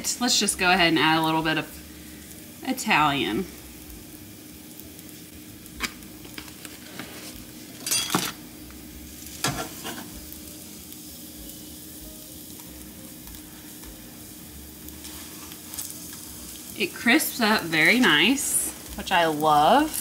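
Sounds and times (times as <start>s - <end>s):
food sizzling in a skillet: 0.0s - 20.0s
spatula scraping a pan: 15.0s - 16.6s.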